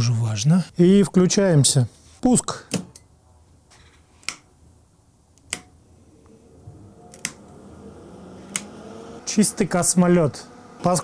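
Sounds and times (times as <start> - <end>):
smokehouse humming: 5.0 - 11.0
rocker switches clicking: 5.3 - 5.8, 7.1 - 7.5, 8.4 - 8.8.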